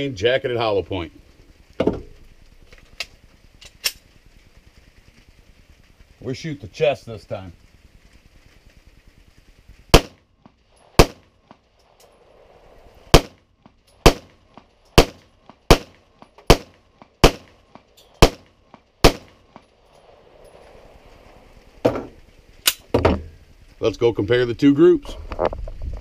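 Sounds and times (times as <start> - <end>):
pistol shots: 9.9 - 10.2, 10.9 - 11.3, 13.1 - 13.4, 14.0 - 14.4, 15.0 - 17.6, 18.2 - 19.5.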